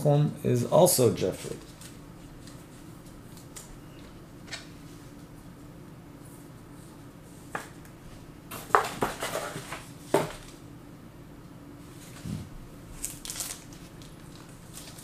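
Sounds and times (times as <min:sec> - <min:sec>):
steady low hum: 0:00.0 - 0:15.0
packaging rustle: 0:13.0 - 0:15.0.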